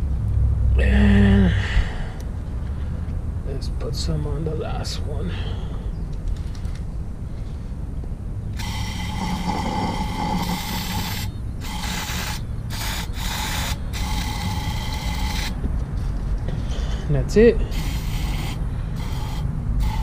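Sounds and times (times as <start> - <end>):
aerosol can spraying: 8.6 - 15.6, 17.7 - 20.0.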